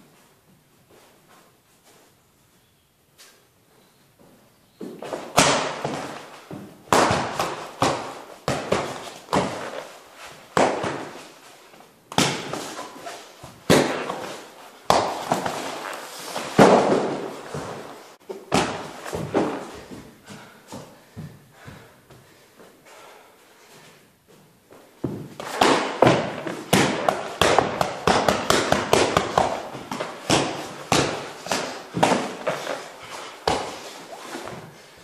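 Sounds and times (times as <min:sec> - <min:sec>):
punches thudding on training dummy: 0:05.3 - 0:06.3, 0:06.9 - 0:09.8, 0:10.5 - 0:11.2, 0:12.1 - 0:12.9, 0:13.6 - 0:15.7, 0:18.5 - 0:19.6, 0:25.1 - 0:32.8, 0:33.4 - 0:33.8.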